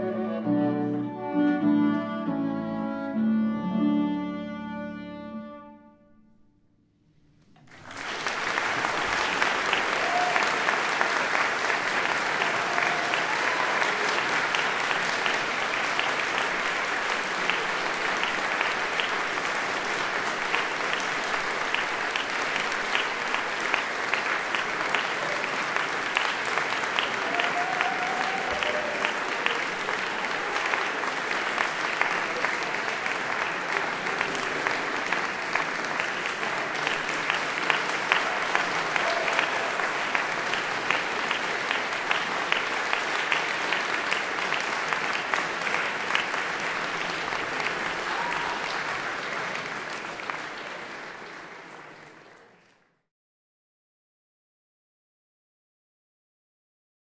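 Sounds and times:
audience applauding: 7.6s - 52.9s.

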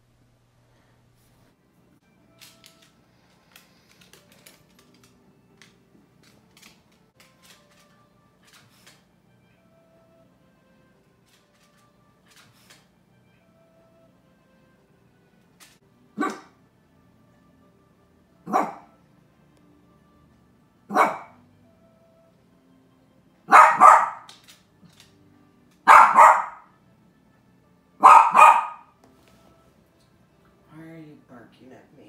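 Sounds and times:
small dog barking: 16.2s - 16.6s, 18.4s - 18.9s, 20.9s - 21.4s, 23.5s - 24.3s, 25.8s - 26.7s, 28.0s - 28.9s.

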